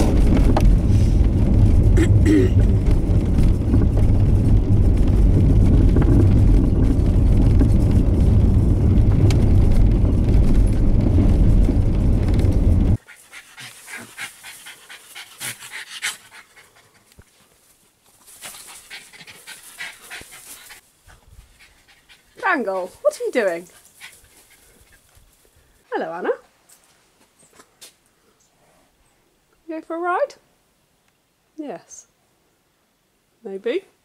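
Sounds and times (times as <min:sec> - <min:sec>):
vehicle rumble from inside cabin: 0:00.0 - 0:13.0
dog panting: 0:13.0 - 0:17.4, 0:18.4 - 0:25.2.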